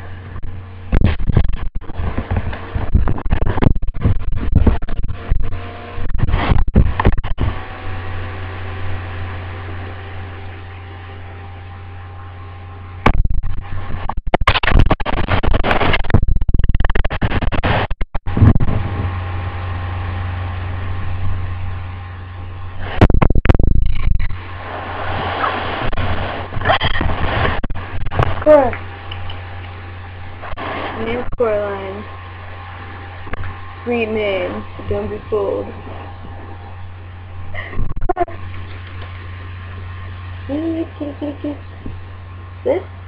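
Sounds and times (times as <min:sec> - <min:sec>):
steady hum: 0:00.0 - 0:43.0
microphone handling scraping: 0:00.2 - 0:07.7, 0:13.1 - 0:19.2, 0:22.8 - 0:28.5.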